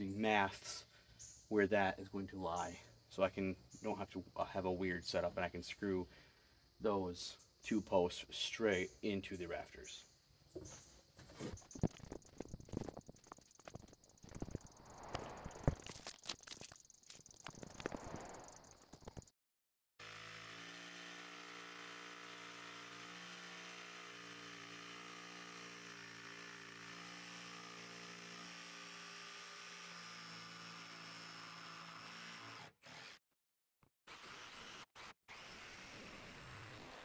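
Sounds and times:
knocks and scrapes: 10.5s - 19.3s.

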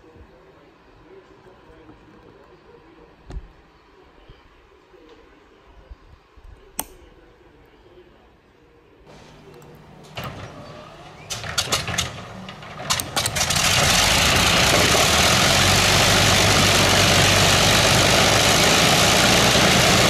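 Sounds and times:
aircraft engine starting: 9.1s - 20.0s.

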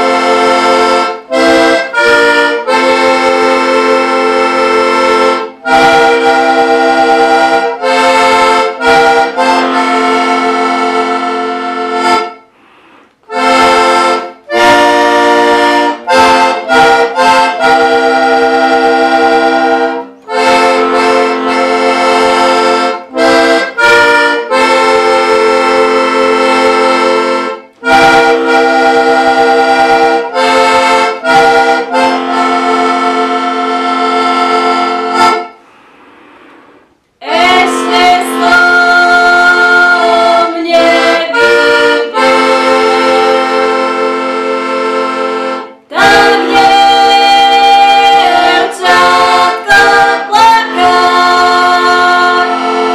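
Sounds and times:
bass accompaniment: 0.0s - 52.9s
button accordion playing chords: 0.0s - 52.9s
woman singing: 37.2s - 41.6s, 45.9s - 52.9s.

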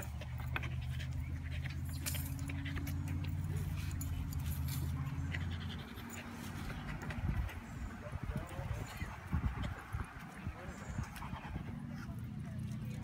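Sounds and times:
dog tags jingling: 0.0s - 7.6s.

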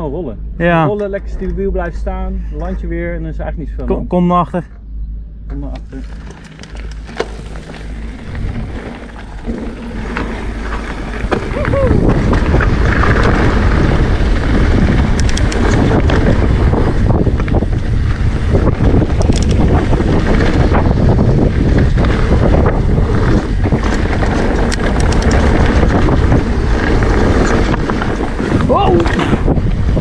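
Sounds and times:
wind buffeting microphone: 0.0s - 30.0s
tyres rumbling on loose ground: 5.5s - 30.0s
bike clicking and rattling: 5.7s - 30.0s.

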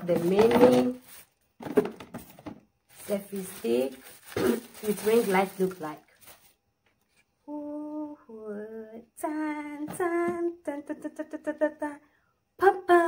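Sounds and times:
woman singing wordless tune: 7.5s - 13.0s.

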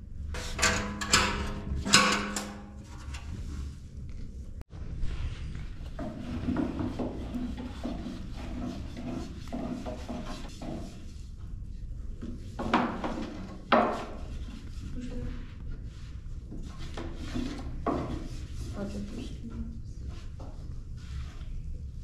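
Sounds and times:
rolling pin rolling dough: 5.8s - 11.3s.

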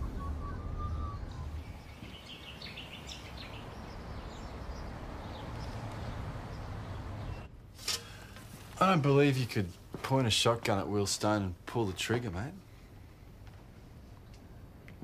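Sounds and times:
birds chirping: 0.0s - 7.5s
low background rumble: 0.0s - 7.7s.

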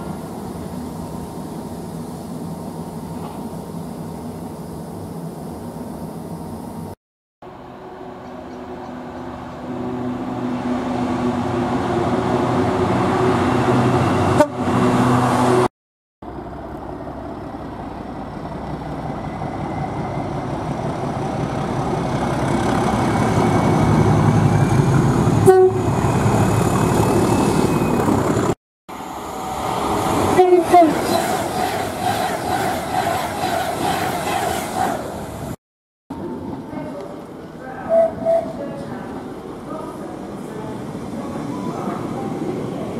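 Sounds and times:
diesel locomotive engine: 0.0s - 42.9s
train rushing past: 7.5s - 15.7s, 17.8s - 35.6s
train horn blast: 14.3s - 14.8s, 25.4s - 26.0s.

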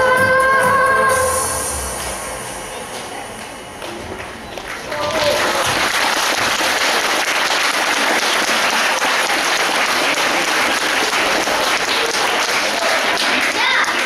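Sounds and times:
audience applauding: 3.4s - 14.0s.

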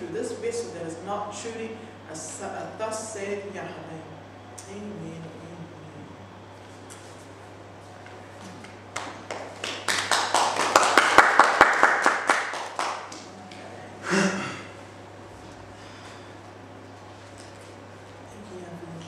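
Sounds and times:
hand clapping: 8.6s - 13.6s.

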